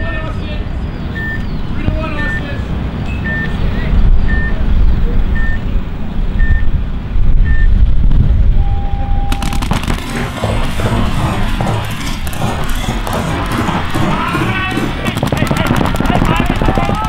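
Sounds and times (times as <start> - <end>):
heavy low rumble: 0.0 - 17.0
electronic countdown beeps: 1.1 - 1.5, 3.1 - 3.6, 4.3 - 4.6, 5.4 - 5.6, 6.4 - 6.7, 7.4 - 7.7
low start tone: 8.4 - 15.2
paintball markers rapid fire: 9.3 - 17.0.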